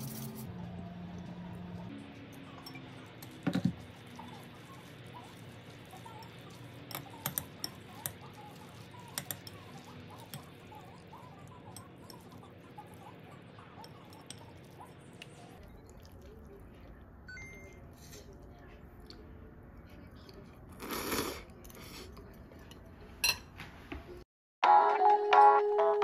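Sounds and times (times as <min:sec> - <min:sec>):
wet noodle sounds: 0:00.1 - 0:17.3
fork tapping glass bowl: 0:06.9 - 0:08.4, 0:09.1 - 0:10.7.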